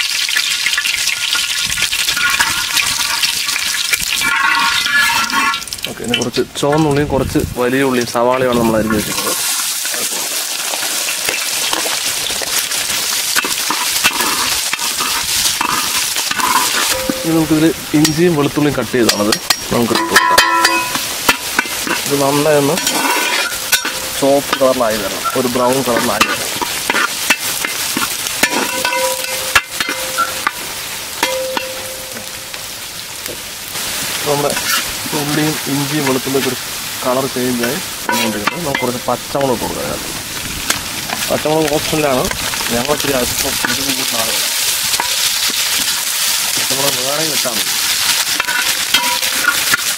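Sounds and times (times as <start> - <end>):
shallots sizzling in hot oil: 0.0 - 49.9
metal ladle scraping a pan: 0.8 - 6.3, 7.8 - 10.1, 13.3 - 18.2, 19.1 - 32.4, 34.5 - 36.5, 37.6 - 39.1, 43.4 - 46.6, 47.3 - 49.9.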